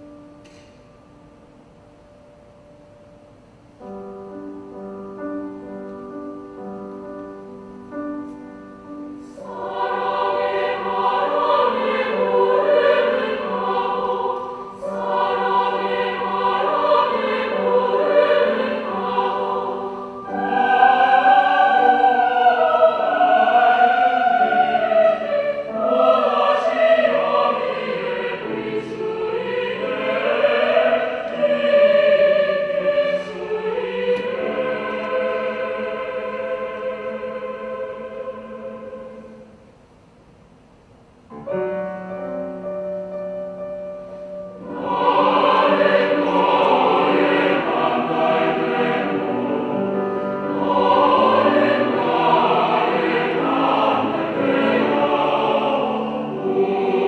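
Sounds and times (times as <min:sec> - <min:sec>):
mixed choir singing: 0:08.9 - 0:39.7, 0:44.3 - 0:57.0.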